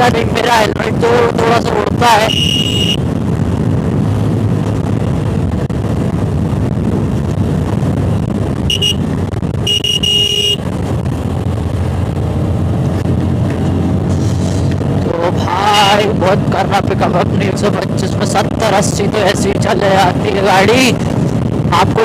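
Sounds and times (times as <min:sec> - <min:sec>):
wind rushing over microphone: 0:00.0 - 0:22.0
vehicle horn: 0:02.2 - 0:03.0, 0:08.7 - 0:09.0, 0:09.6 - 0:10.6.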